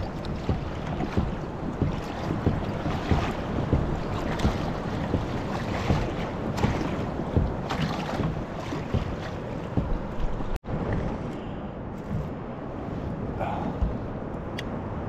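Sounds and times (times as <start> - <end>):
water lapping against kayak hull: 0.0 - 14.3
wind buffeting microphone: 0.0 - 15.0.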